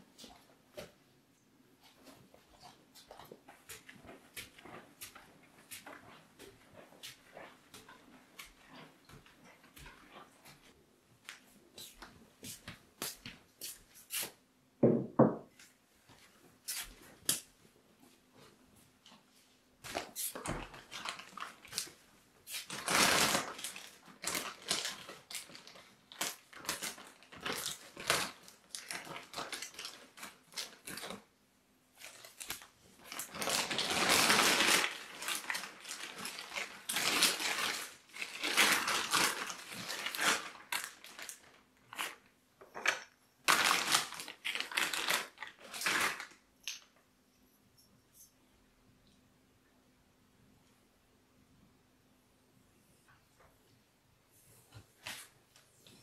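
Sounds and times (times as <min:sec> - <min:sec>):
plastic bag crinkling: 0:19.9 - 0:31.3, 0:32.0 - 0:46.4.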